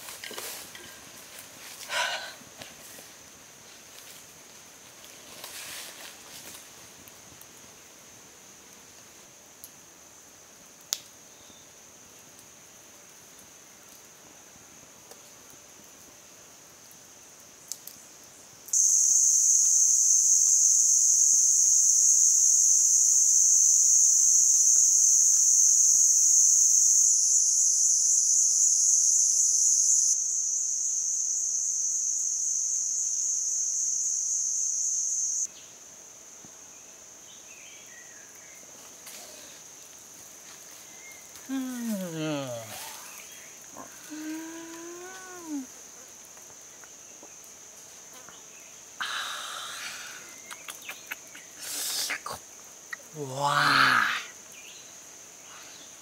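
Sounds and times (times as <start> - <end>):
cicadas droning: 0.0 - 56.0.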